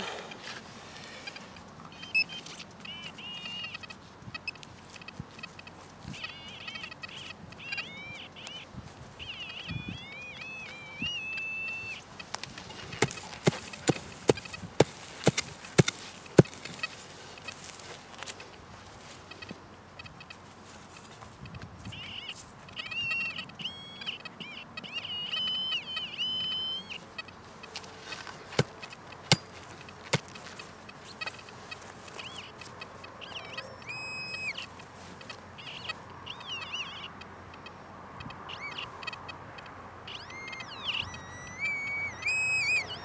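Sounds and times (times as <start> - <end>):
hand tool digging in stony soil: 12.3 - 18.4, 27.7 - 30.8
blade knocking on stones: 13.0 - 16.7, 28.6 - 30.4.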